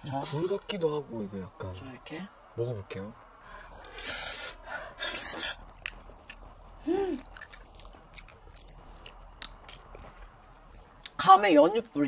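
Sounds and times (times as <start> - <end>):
wet slurping and sucking: 3.8 - 6.4
person humming: 6.8 - 7.2.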